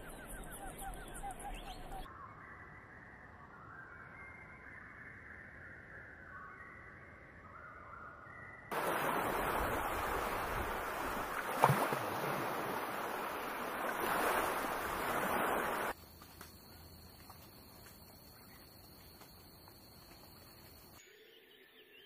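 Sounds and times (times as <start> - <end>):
sea surf rushing: 8.7 - 16.0.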